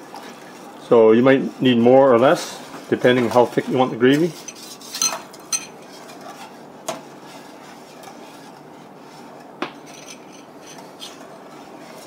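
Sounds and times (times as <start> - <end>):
whisk clinking against pot: 4.3 - 6.6.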